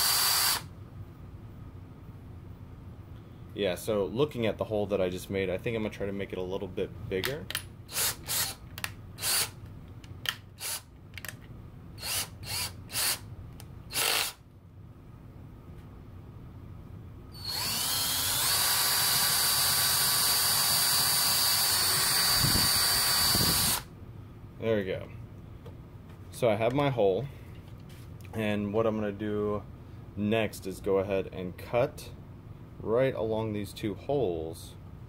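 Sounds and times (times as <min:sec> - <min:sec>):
cordless drill drilling through pipe: 0:00.0 - 0:00.7, 0:07.9 - 0:08.6, 0:10.6 - 0:10.8, 0:12.0 - 0:13.2, 0:13.9 - 0:14.4, 0:17.4 - 0:23.8.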